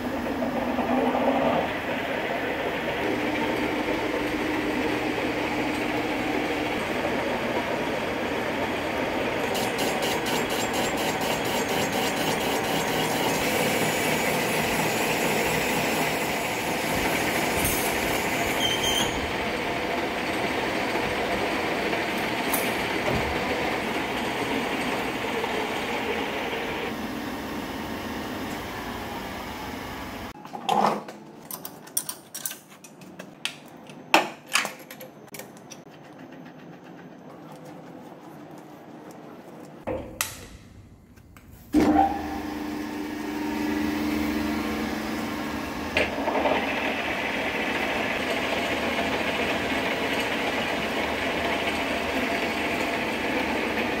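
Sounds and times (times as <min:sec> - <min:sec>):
lathe running: 0:00.0 - 0:30.4, 0:41.8 - 0:54.0.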